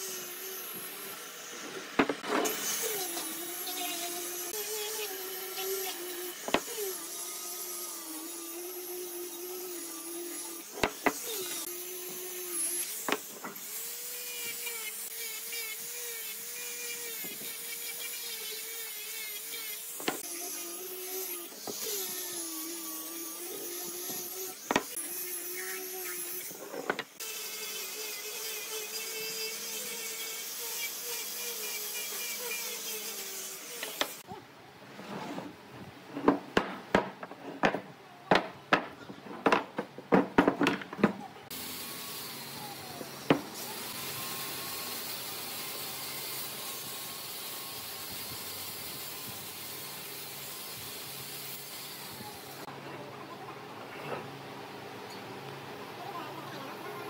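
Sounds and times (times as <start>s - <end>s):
angle grinder sanding wood: 0.0s - 34.3s, 41.5s - 52.7s.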